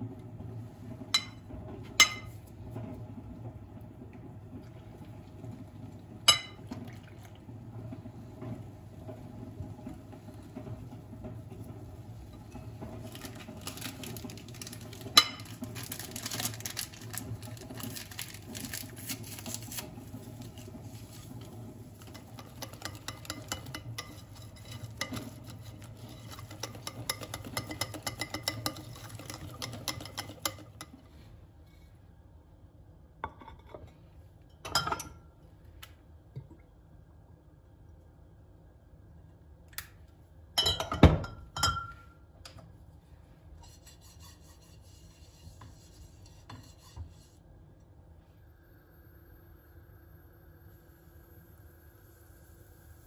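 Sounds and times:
paper sachet tearing and rustling: 13.1s - 19.9s
whisk tapping against bowl: 22.0s - 31.0s.

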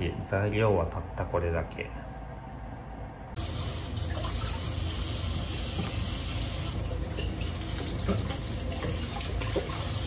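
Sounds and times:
tap water running into steel sink: 3.4s - 10.0s.

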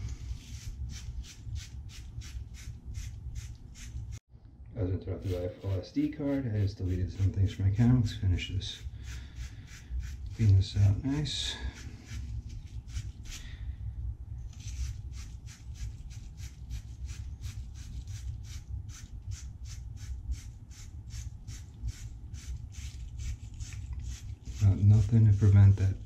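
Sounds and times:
wire brush scrubbing copper pipe: 5.2s - 13.4s, 14.5s - 26.0s.

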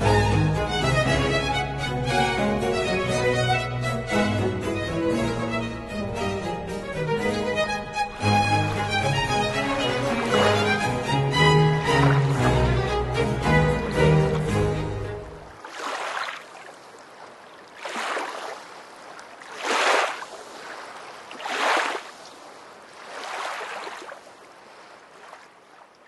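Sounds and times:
string music: 0.0s - 15.6s
sea waves washing: 0.0s - 26.0s.

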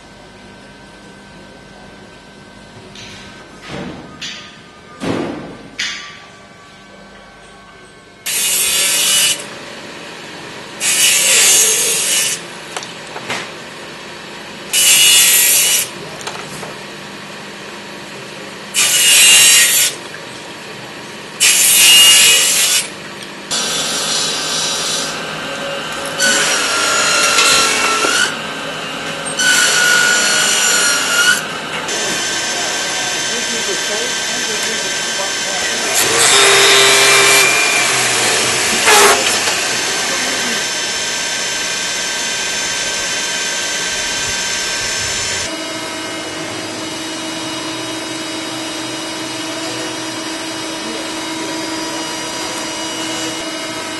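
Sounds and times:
factory machine whining: 0.0s - 53.9s
circular saw cutting: 8.2s - 10.0s, 10.6s - 12.6s, 14.7s - 16.0s, 18.7s - 20.0s, 21.4s - 53.9s.

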